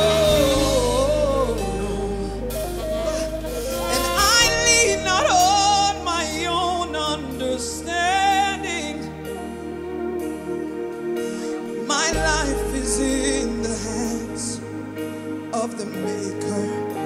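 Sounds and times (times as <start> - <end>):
woman singing into a microphone: 0.0 - 9.9, 11.8 - 14.6
sustained instrumental chords: 0.0 - 17.0.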